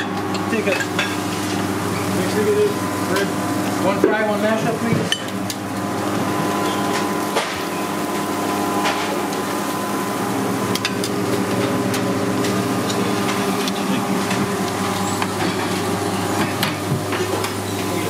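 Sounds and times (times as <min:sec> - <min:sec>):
clinks of tongs and plates: 0:00.0 - 0:01.2
kitchen equipment humming: 0:00.0 - 0:18.0.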